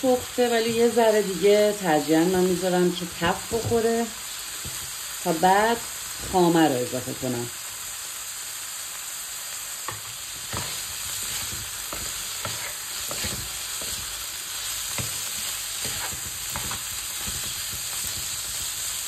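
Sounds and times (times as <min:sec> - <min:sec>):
food sizzling in a frying pan: 0:00.0 - 0:19.0
utensil scraping a pan: 0:10.0 - 0:18.7.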